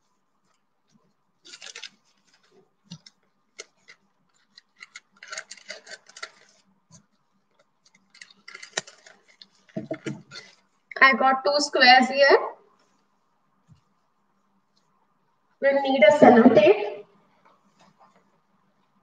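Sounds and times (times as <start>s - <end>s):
plastic crinkling: 0.4s - 10.8s.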